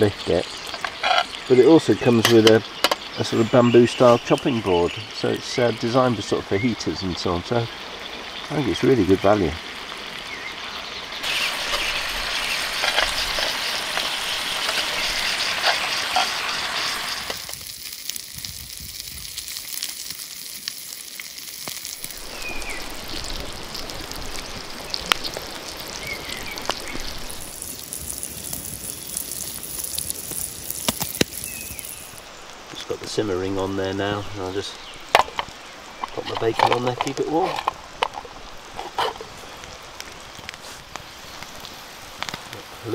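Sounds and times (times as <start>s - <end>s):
bacon sizzling in a skillet: 0.0s - 6.0s, 7.8s - 32.6s
cheese frying in a pan: 0.0s - 42.9s.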